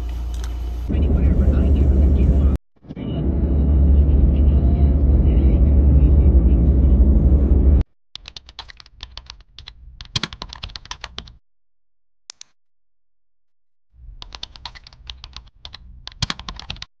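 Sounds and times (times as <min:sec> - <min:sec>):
computer keyboard typing: 0:08.2 - 0:11.4, 0:14.2 - 0:16.9.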